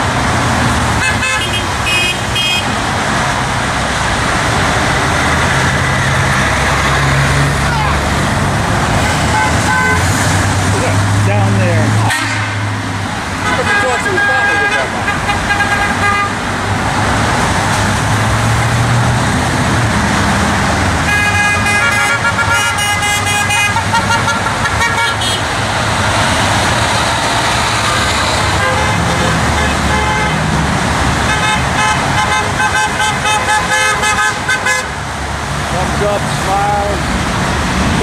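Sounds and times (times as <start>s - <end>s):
heavy traffic rushing: 0.0s - 38.0s
car horns honking: 0.9s - 2.9s, 8.9s - 10.4s, 11.3s - 16.6s, 21.0s - 25.7s, 27.1s - 35.0s.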